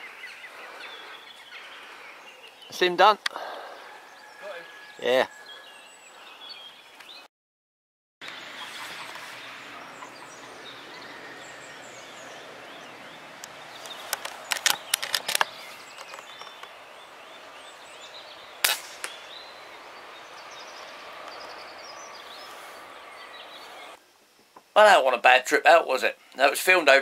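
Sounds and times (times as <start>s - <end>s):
birdsong: 0.0s - 7.3s, 8.2s - 27.0s
sharp clicks: 13.4s - 16.7s
air rifle shot: 18.6s - 19.4s.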